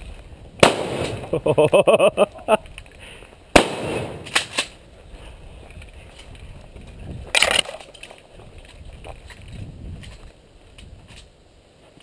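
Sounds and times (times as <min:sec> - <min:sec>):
shotgun shot: 0:00.6 - 0:01.3, 0:03.6 - 0:04.6.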